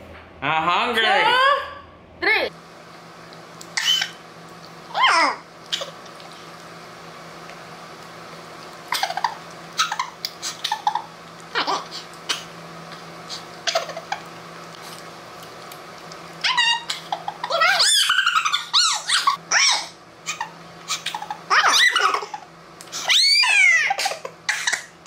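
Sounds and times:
low room hum: 0:00.0 - 0:25.0.

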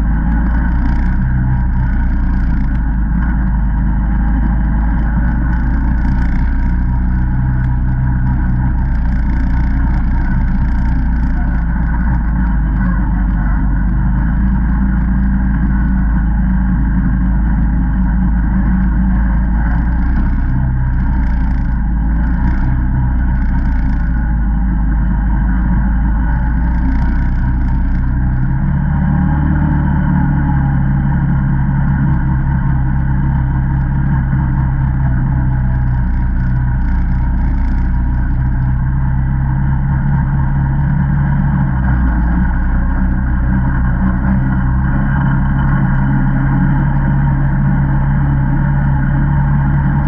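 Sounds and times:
all-terrain vehicle engine running: 0:00.0 - 0:50.0.

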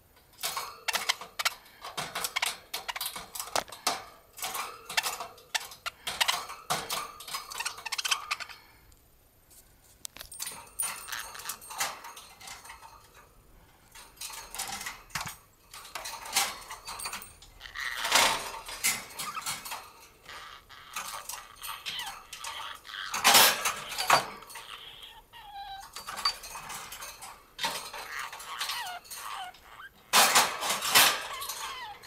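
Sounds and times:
metallic clinks on cage bars: 0:13.9 - 0:20.2.

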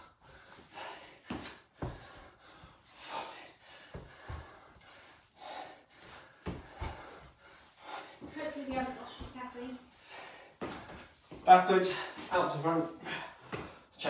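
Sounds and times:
man breathing hard: 0:00.0 - 0:08.4, 0:09.8 - 0:12.2, 0:12.9 - 0:14.0
trainers thudding on rubber floor: 0:01.3 - 0:02.2, 0:03.9 - 0:04.7, 0:06.4 - 0:07.4, 0:08.2 - 0:09.8.

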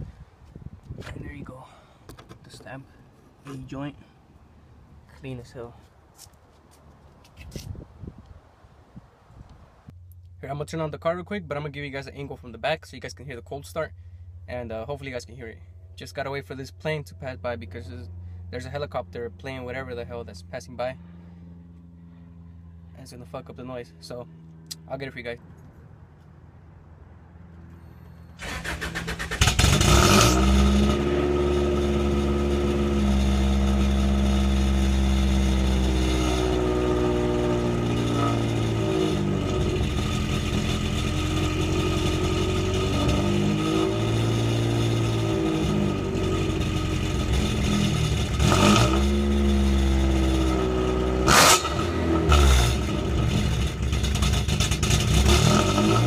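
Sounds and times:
car engine idling raspy: 0:27.6 - 0:56.0
sharp exhaust bursts: 0:28.0 - 0:56.0
starter motor cranking: 0:28.4 - 0:30.0.

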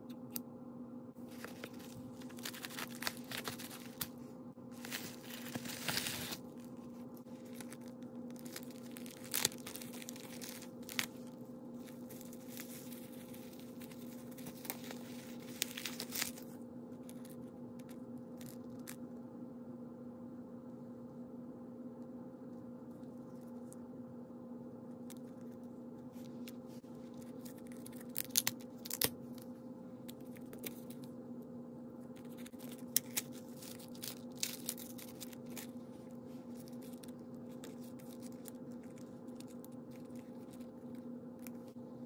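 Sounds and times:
steady low hum: 0:00.0 - 0:42.0
plastic pouch crinkling and tearing: 0:01.3 - 0:04.2, 0:04.8 - 0:17.4, 0:32.2 - 0:41.8
scissors cutting paper mailer: 0:04.9 - 0:06.4.

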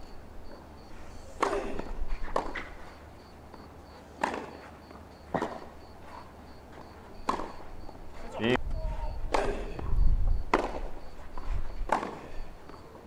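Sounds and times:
tennis ball struck by rackets: 0:01.4 - 0:02.7, 0:04.2 - 0:04.6, 0:07.2 - 0:07.6, 0:10.5 - 0:11.0, 0:11.8 - 0:12.3.

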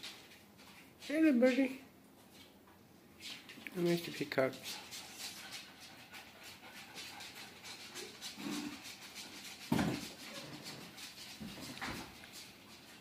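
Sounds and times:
small dog panting: 0:04.4 - 0:13.0.

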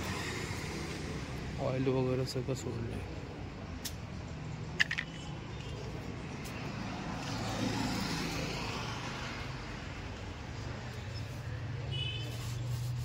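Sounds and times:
street traffic hum: 0:00.0 - 0:13.0
vehicle passing: 0:06.6 - 0:10.1.

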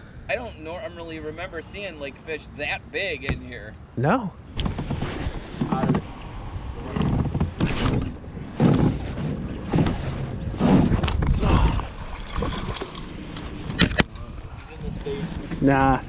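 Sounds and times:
sleeve rubbing on microphone: 0:04.8 - 0:05.9, 0:06.8 - 0:11.0.

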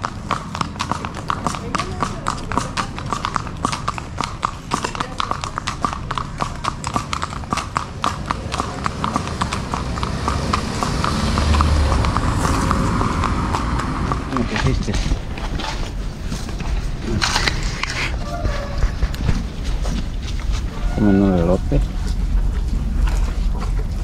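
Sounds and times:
rushing noise: 0:08.8 - 0:24.0.

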